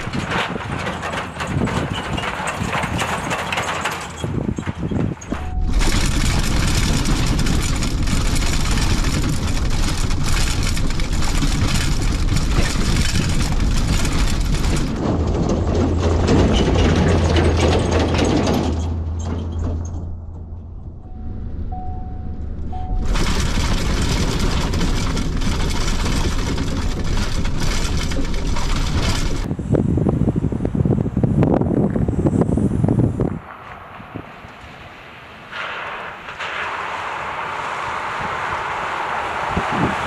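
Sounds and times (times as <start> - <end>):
body knocks and rattles: 0.0 - 20.5, 22.9 - 29.5
truck engine and tyres passing: 0.0 - 29.8, 31.7 - 40.0
road noise inside truck cab: 0.0 - 40.0
short steady beep: 5.3 - 5.9, 21.0 - 23.1.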